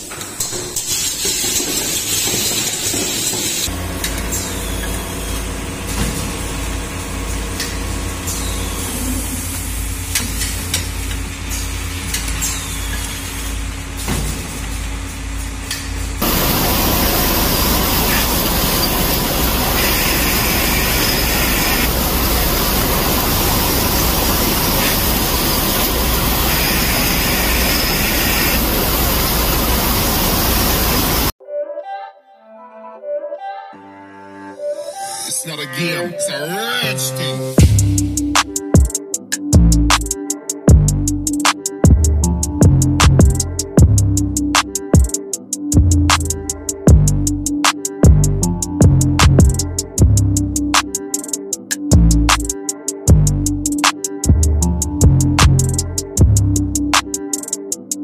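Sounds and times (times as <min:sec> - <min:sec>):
pneumatic clicks: 0:00.0 - 0:06.4
low electric hum: 0:03.7 - 0:31.3
loud steady hiss: 0:06.5 - 0:31.4, 0:55.4 - 0:56.0.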